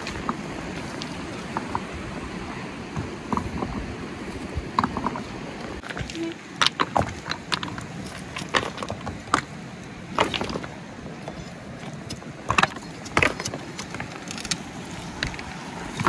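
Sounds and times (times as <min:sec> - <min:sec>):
river rushing over rocks: 0:00.0 - 0:16.0.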